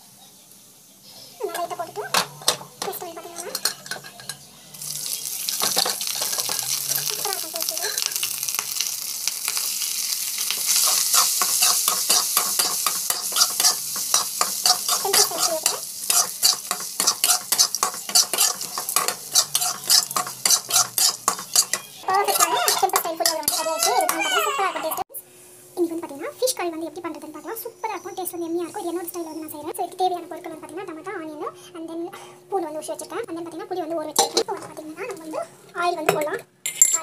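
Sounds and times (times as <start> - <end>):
oil sizzling in a pan: 0.0 - 28.0, 33.5 - 36.0
spatula scraping a pan: 5.5 - 8.8, 10.5 - 25.0.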